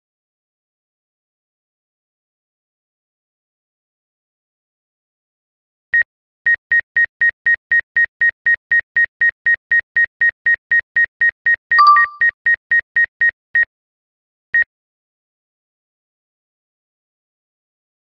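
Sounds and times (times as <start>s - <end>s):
short alert tone: 11.8s - 12.2s.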